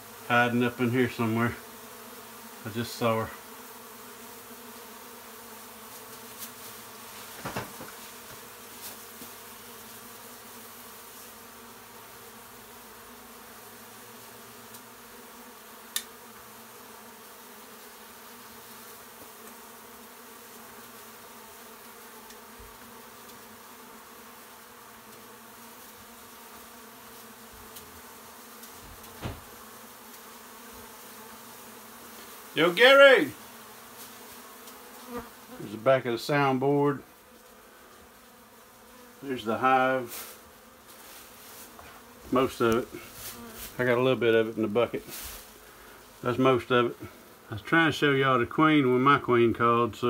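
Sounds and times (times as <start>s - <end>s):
bees buzzing: 0.0s - 49.9s
knocks: 7.4s - 8.0s, 28.8s - 29.6s.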